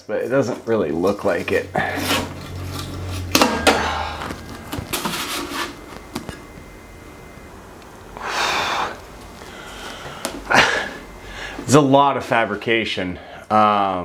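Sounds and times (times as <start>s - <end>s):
rustling and scraping: 0.2s - 6.7s
breathy exhale: 8.2s - 11.7s.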